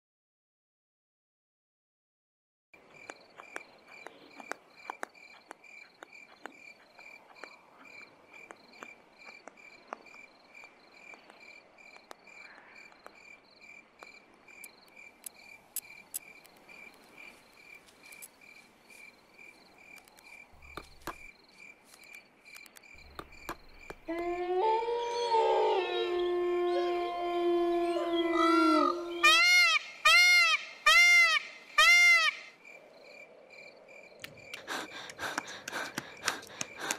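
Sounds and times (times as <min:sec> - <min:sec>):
night insects chirping: 0:02.8 - 0:36.9
faint clicks: 0:11.0 - 0:13.2, 0:21.9 - 0:24.3
animal howling: 0:24.1 - 0:29.4.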